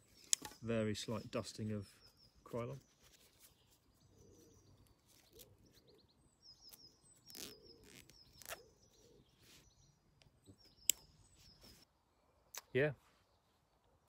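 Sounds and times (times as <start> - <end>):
songbirds trilling: 0.0 - 14.0
rustling of dry leaves: 2.7 - 9.5.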